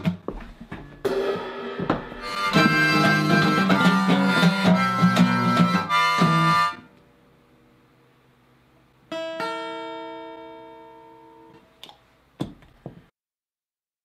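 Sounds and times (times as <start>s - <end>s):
acoustic guitar strummed: 0.0s - 7.0s, 9.1s - 11.6s.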